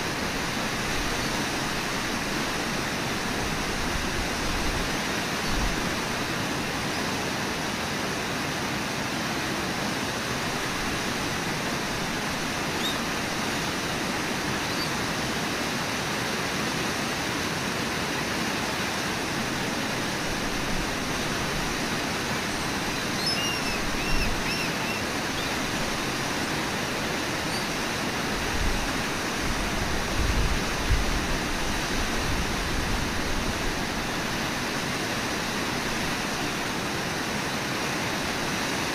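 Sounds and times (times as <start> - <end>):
river rushing over waterfall: 0.0 - 38.9
faint high chirps: 22.9 - 25.5.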